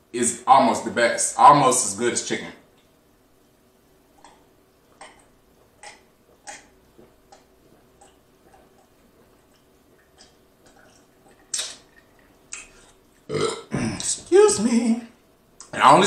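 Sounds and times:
man gulping a drink: 4.2s - 14.3s.

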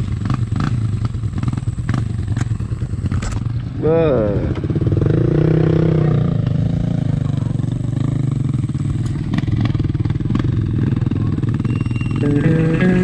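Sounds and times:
motorcycle engine idling: 0.0s - 13.0s
music: 12.1s - 13.0s.

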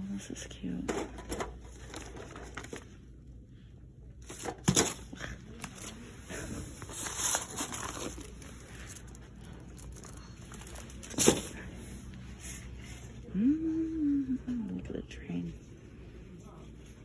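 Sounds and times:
low steady hum: 0.0s - 17.0s
rustling and crinkling: 0.9s - 3.2s, 4.2s - 12.7s.

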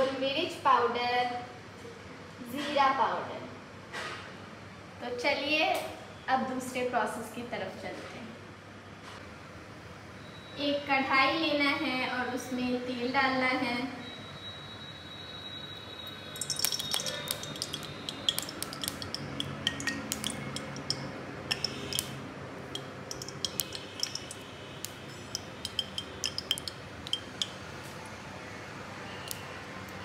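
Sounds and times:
metal spoon clinking on metal pan: 16.4s - 27.6s.

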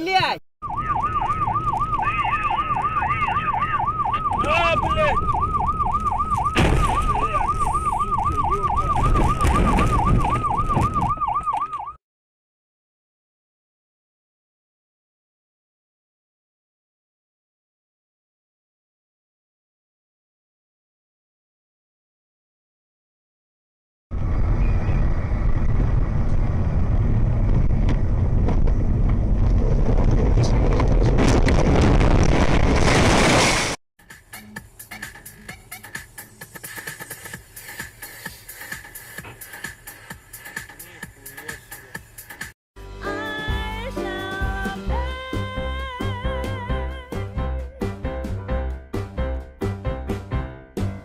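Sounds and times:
road and engine rumble: 0.6s - 11.9s, 24.1s - 50.0s
yelp siren warbling: 0.6s - 12.0s
wind buffeting microphone: 24.1s - 32.9s.

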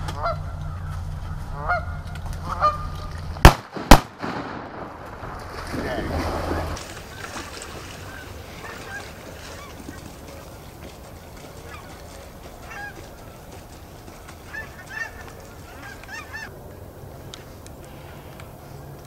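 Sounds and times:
geese honking: 0.0s - 3.2s, 7.1s - 16.5s.

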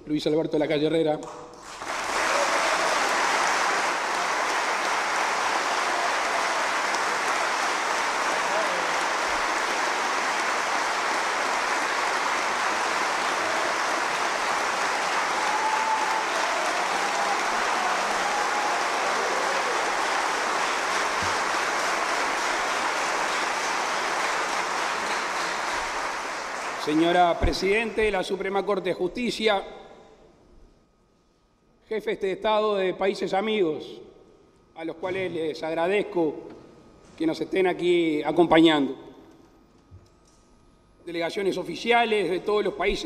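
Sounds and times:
audience applauding: 1.6s - 28.1s.

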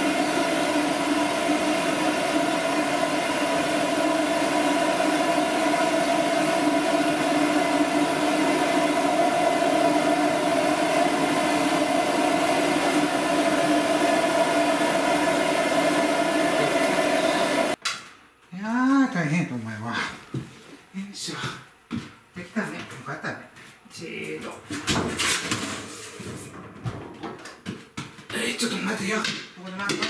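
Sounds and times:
blow-dryer whirring: 0.0s - 17.8s.

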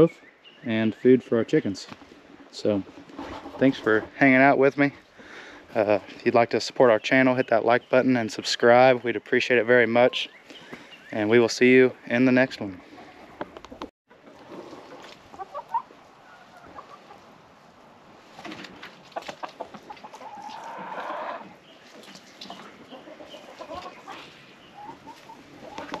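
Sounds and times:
chickens clucking: 12.4s - 26.0s
loud chicken call: 20.1s - 21.5s.

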